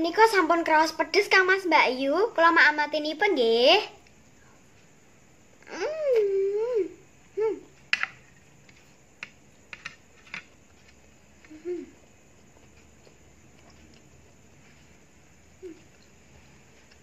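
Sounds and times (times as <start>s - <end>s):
person humming: 5.7s - 7.7s, 11.4s - 12.1s
eating sounds: 10.8s - 17.0s.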